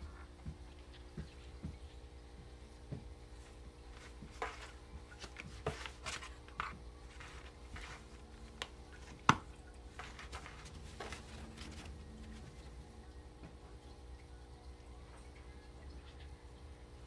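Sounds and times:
claws scratching cardboard: 4.0s - 12.4s.

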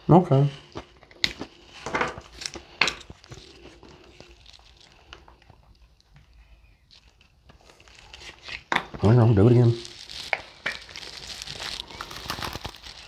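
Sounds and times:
soft plastic rustling: 0.3s - 13.0s.

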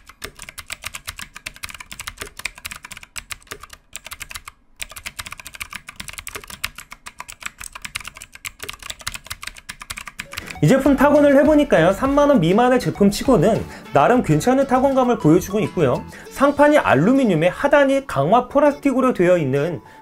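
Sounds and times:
mechanical keyboard typing: 0.0s - 12.2s.

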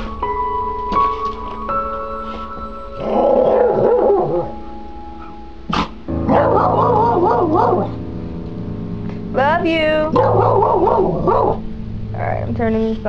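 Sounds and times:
background music held tones: 0.0s - 13.0s
dog growly whines: 3.0s - 4.6s.

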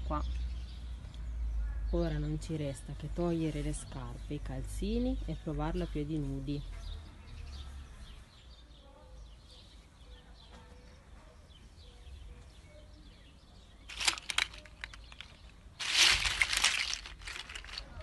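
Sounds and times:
sharp crackling clicks: 13.9s - 18.0s.

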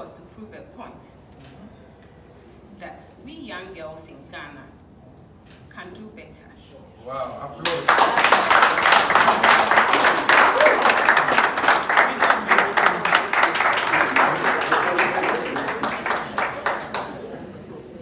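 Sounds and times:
audience applauding: 7.6s - 18.0s.

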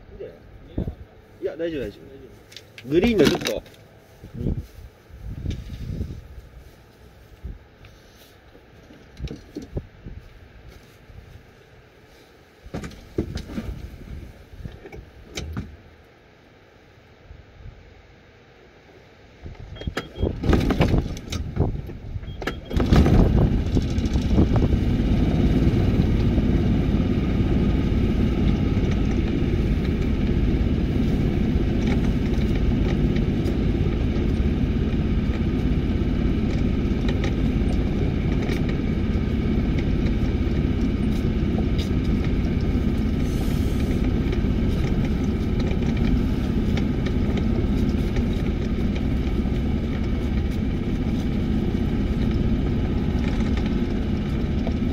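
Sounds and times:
vehicle engine starting and running: 1.5s - 6.8s, 19.6s - 54.9s
knocks and rattles: 20.4s - 21.9s.

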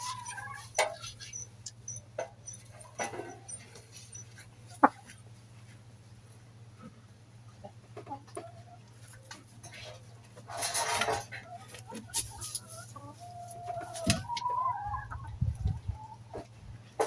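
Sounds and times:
hens clucking: 0.0s - 17.0s
rustle of straw: 12.0s - 13.6s.

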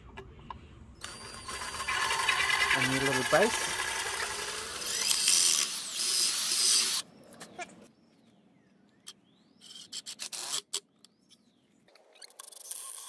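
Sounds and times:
cordless drill driving a screw: 1.0s - 7.0s.

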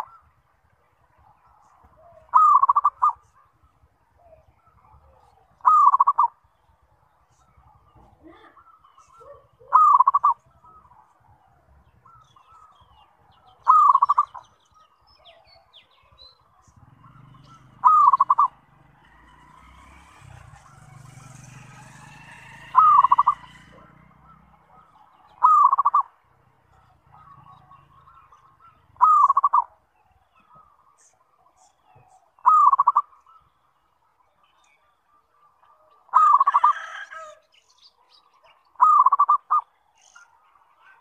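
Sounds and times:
faint bird chirps: 0.0s - 18.7s, 22.7s - 41.0s
dove cooing: 1.3s - 3.5s, 4.2s - 6.4s, 7.5s - 12.8s, 13.4s - 14.6s, 16.8s - 18.7s, 20.1s - 29.8s, 31.8s - 33.4s, 35.6s - 37.4s, 38.8s - 39.7s.

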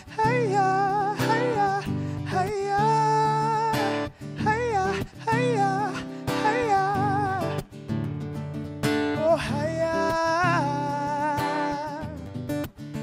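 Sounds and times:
acoustic guitar strummed: 0.0s - 13.0s.

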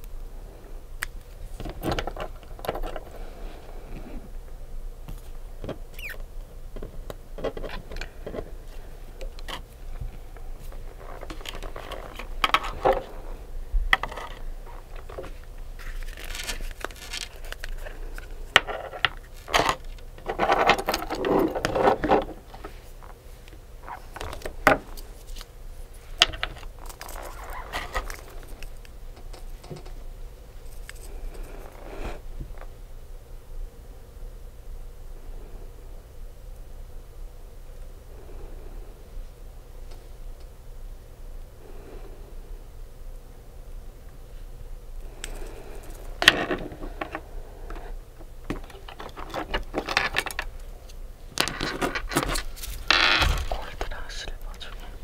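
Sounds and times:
scraping and rustling: 5.1s - 32.7s, 45.1s - 55.0s.

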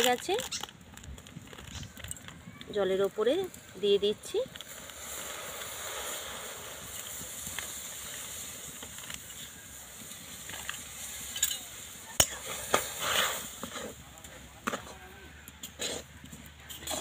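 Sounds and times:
semolina hissing in hot water: 4.7s - 13.9s
spoon scraping a pan: 15.6s - 17.0s.

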